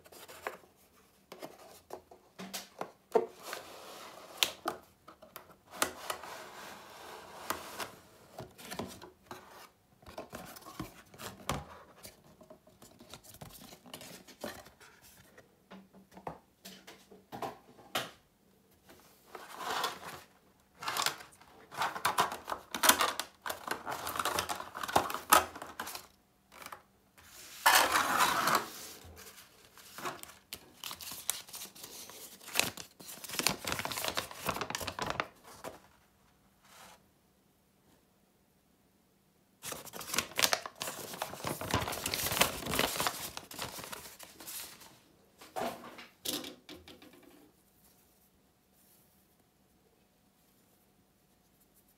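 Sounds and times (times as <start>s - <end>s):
paper manual rustling: 19.3s - 35.9s, 39.6s - 45.0s
cardboard packaging handled: 27.6s - 35.8s, 39.6s - 44.9s
plastic wrapping crinkling: 29.7s - 35.8s, 39.6s - 44.9s.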